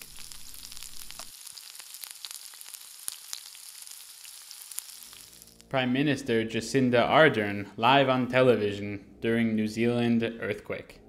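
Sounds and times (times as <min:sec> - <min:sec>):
food sizzling in a pan: 0:00.0 - 0:05.7.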